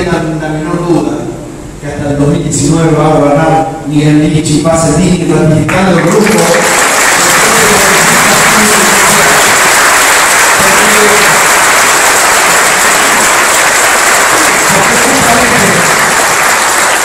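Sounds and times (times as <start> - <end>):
crowd applauding: 5.7 - 17.0.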